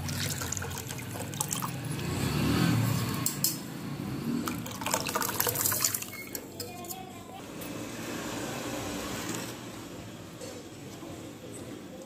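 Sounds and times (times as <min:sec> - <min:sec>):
buttermilk pouring into porridge: 0:00.0 - 0:01.9, 0:04.5 - 0:06.3.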